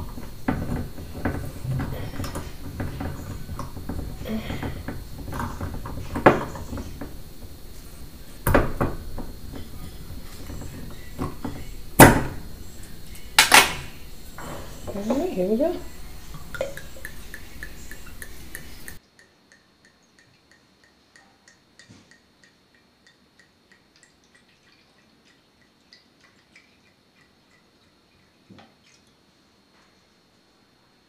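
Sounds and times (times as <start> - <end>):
low handling noise: 0.0 - 19.0
sharp clicks and knocks: 0.0 - 24.2.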